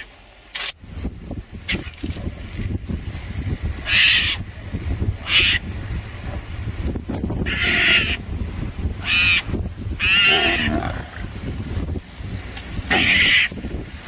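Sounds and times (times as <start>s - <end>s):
low background rumble: 0.0s - 14.0s
mongoose high-pitched calls: 3.8s - 4.5s, 5.2s - 5.7s, 7.4s - 8.2s, 9.0s - 10.8s, 12.9s - 13.6s.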